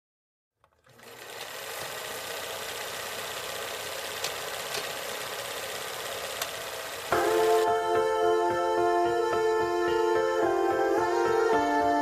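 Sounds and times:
mechanical whirring with rattle: 0:00.6 - 0:07.2.

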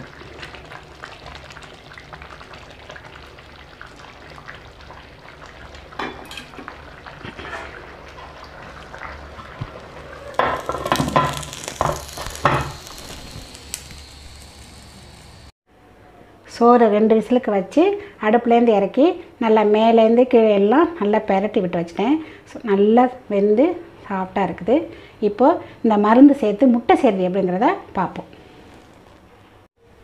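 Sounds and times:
rice simmering and bubbling: 0:00.0 - 0:15.6, 0:28.4 - 0:29.3.

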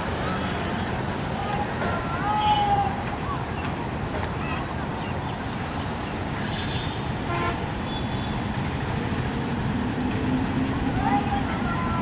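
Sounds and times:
diesel locomotive engine rumble: 0:00.0 - 0:12.0
train horn toot: 0:06.6 - 0:08.4.

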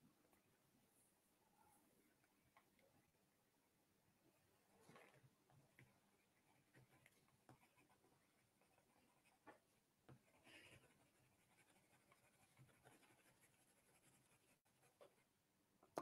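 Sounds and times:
pencil scratching on paper: 0:05.6 - 0:15.3.

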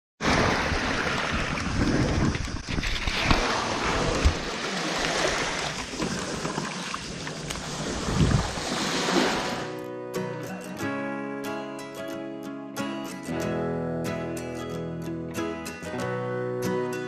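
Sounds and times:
seawater lapping and splashing: 0:00.2 - 0:09.8
wind buffeting microphone: 0:00.4 - 0:04.5, 0:05.8 - 0:08.8.

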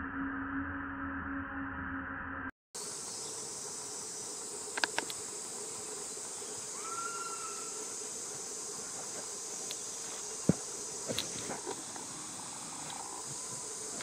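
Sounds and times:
insect chorus drone: 0:02.8 - 0:14.0
sharp clicks: 0:04.7 - 0:05.2.

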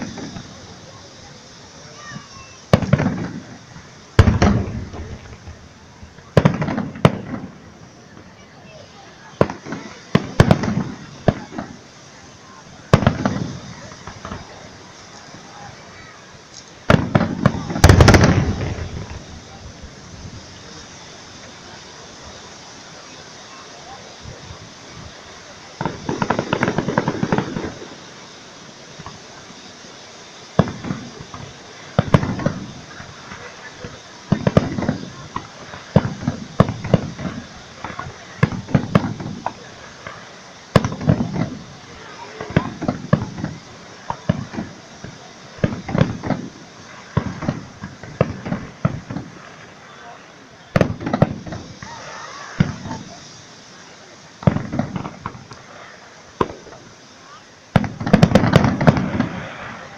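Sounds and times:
fireworks crackling bursts: 0:00.0 - 0:59.9
small firework pops: 0:00.0 - 0:59.9
loud firework bang: 0:01.9 - 0:05.6, 0:06.2 - 0:07.7, 0:12.9 - 0:14.6, 0:16.8 - 0:19.6, 0:25.8 - 0:28.0, 0:30.6 - 0:49.4, 0:50.7 - 0:53.2, 0:54.4 - 0:55.6, 0:57.7 - 0:59.9.

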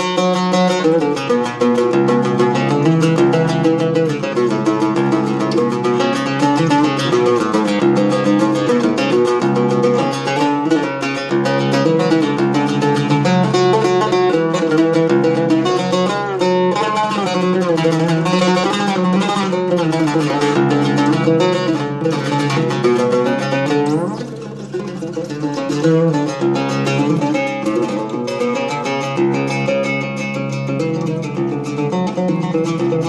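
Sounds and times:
oud plucked notes: 0:00.0 - 0:33.0.

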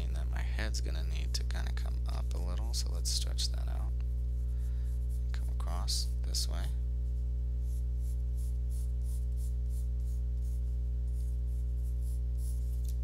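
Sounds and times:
steady low hum: 0:00.0 - 0:13.0
pencil scratching on paper: 0:07.6 - 0:12.9.

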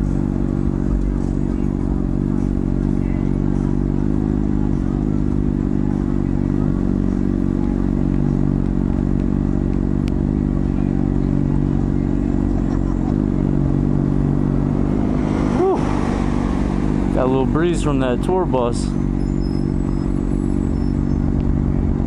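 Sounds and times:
motorcycle engine at low revs: 0:00.0 - 0:22.0.

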